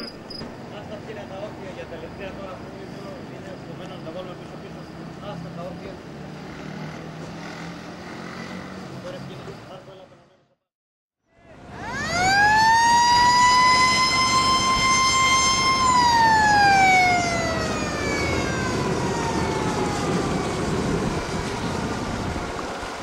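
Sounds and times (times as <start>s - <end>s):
wind: 0.0s - 10.6s, 11.2s - 23.0s
boat noise: 11.4s - 23.0s
mechanical siren wailing: 11.5s - 21.5s.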